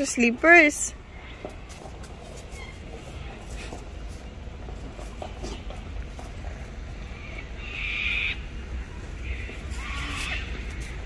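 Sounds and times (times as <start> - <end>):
cockatoos screeching: 2.5 - 2.8, 7.1 - 8.5, 9.2 - 11.0.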